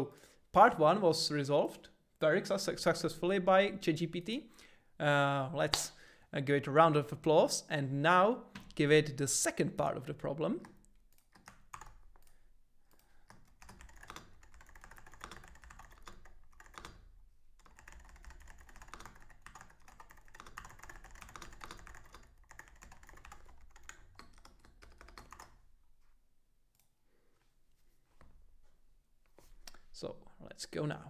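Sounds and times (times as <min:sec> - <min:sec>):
faint keyboard typing: 0:10.6 - 0:25.7.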